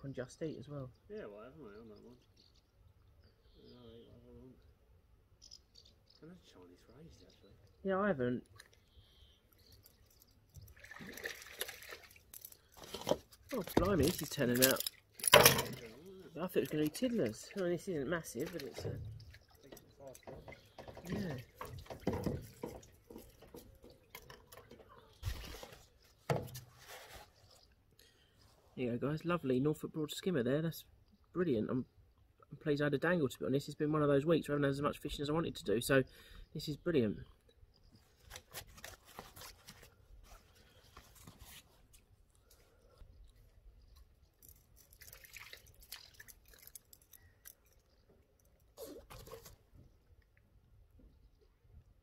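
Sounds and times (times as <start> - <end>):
fishing reel clicks and rustling: 11.6 - 16.0, 42.4 - 49.6
landing net rustling and knocking: 15.2 - 16.0, 20.3 - 25.7.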